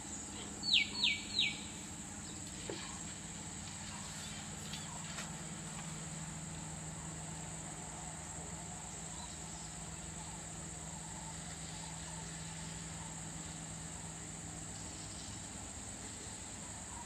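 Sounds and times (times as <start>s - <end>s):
high-pitched insect chorus: 0.0s - 17.0s
low steady hum: 0.0s - 17.0s.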